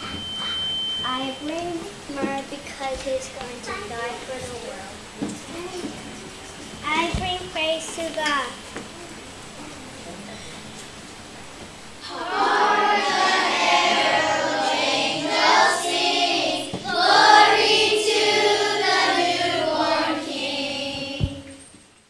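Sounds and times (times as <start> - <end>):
children's choir singing: 12.0 - 21.8
low thump: 20.9 - 21.5.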